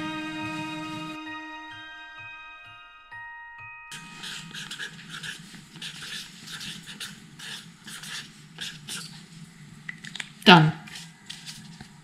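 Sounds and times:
felt-tip marker scratching on paper: 4.0 - 9.1.

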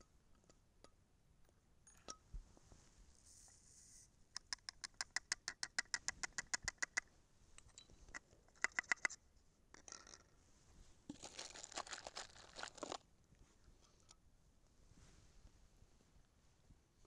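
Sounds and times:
fingers tapping plastic funnel: 4.3 - 7.1, 8.1 - 9.2.

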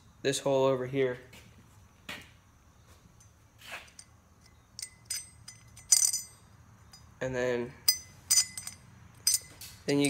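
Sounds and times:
small metal hardware clinking: 3.1 - 10.0.

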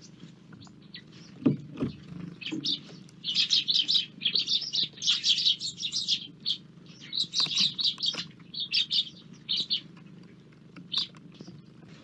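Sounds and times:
sparrows chirping: 0.0 - 12.0.

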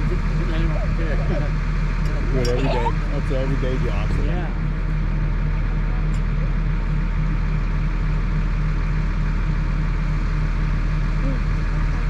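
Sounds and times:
crane truck engine droning: 0.0 - 12.0.

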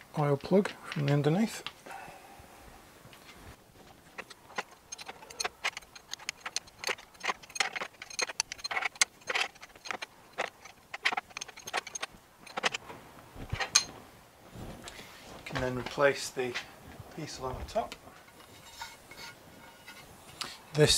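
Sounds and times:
spanner clicking on metal: 4.2 - 12.8.

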